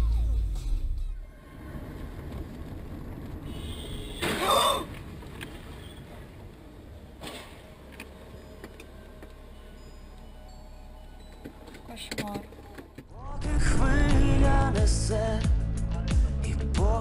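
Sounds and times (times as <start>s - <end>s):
engine and road noise hum: 0.0s - 16.4s
loud low rumble: 13.1s - 16.6s
car crash: 13.3s - 15.0s.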